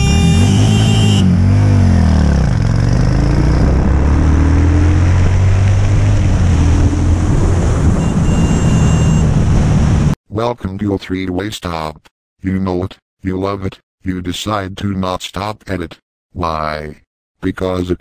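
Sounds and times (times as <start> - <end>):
motorcycle engine: 0.0 - 10.2.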